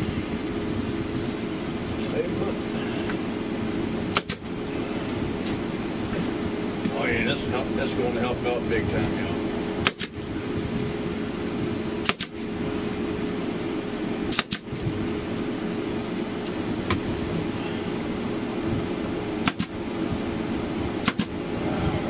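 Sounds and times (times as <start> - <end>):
steady machine hum: 0.0 - 22.0
staple gun firing: 4.1 - 4.5, 9.8 - 10.2, 12.0 - 12.3, 14.3 - 14.7, 19.4 - 19.7, 21.0 - 21.4.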